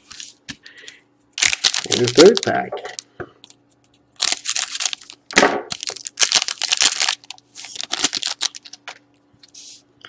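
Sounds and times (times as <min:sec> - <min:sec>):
foil wrapper tearing and crinkling: 0:01.4 - 0:03.0, 0:04.2 - 0:09.0.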